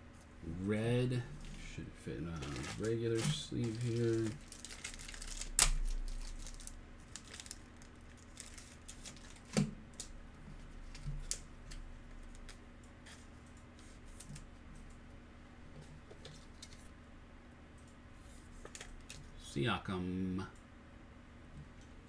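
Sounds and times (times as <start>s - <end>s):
plastic sleeve crinkling: 1.3s - 10.1s.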